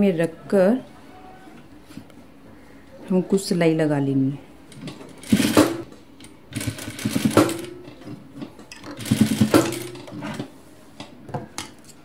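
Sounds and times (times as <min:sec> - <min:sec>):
electric sewing machine stitching: 0:05.2 - 0:05.9, 0:06.5 - 0:07.8, 0:09.0 - 0:10.2.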